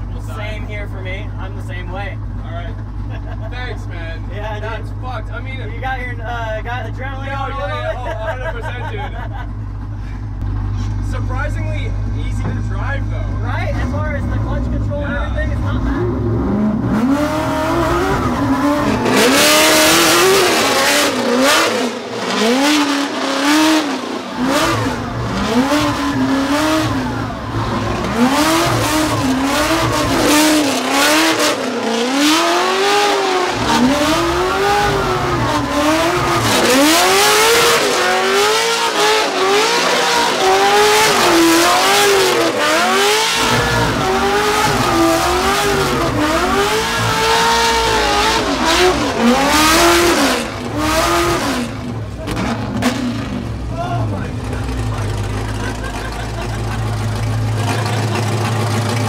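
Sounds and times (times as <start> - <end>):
car engine revving: 9.6 - 59.0
tyres squealing: 24.4 - 50.4.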